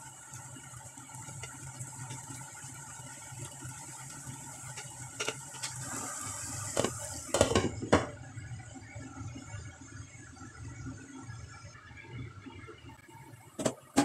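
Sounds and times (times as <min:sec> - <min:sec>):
food sizzling in a pan: 0:00.0 - 0:08.0.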